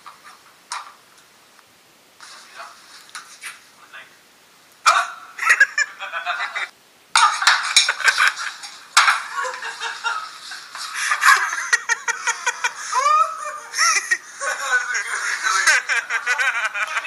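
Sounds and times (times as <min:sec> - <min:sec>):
people laughing: 0:05.4 - 0:17.0
people calling out: 0:12.8 - 0:15.8.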